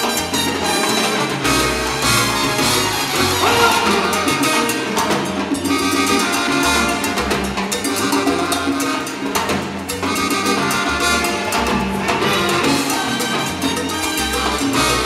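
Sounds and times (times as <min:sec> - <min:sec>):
congas and timbales rhythm: 0:00.0 - 0:15.0
held horn-like chords: 0:00.0 - 0:15.0
salsa band playing: 0:00.0 - 0:15.0.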